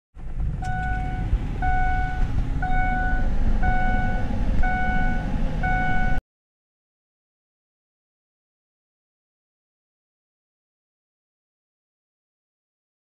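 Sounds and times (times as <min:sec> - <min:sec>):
low rumble: 0:00.2 - 0:06.2
dashboard warning chime beeping: 0:00.6 - 0:06.2.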